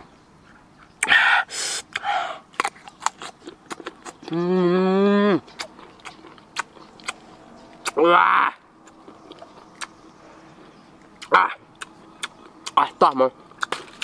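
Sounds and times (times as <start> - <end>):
hissing suck through lips: 1.0 - 2.1
crisp chewing: 1.9 - 4.6, 5.4 - 8.0, 8.8 - 14.0
man humming mmm: 4.3 - 5.4.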